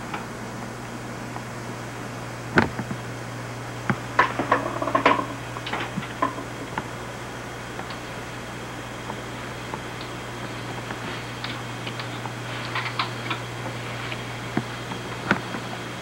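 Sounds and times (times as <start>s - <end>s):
low electrical hum: 0.0s - 16.0s
sharp clicks and knocks: 3.9s - 6.9s, 9.1s - 15.7s.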